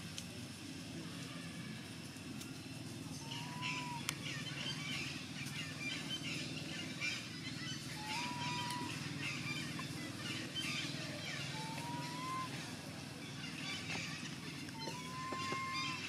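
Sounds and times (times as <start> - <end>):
small birds chirping: 1.8 - 16.0
thin rising whistles: 11.5 - 12.6, 14.8 - 16.0.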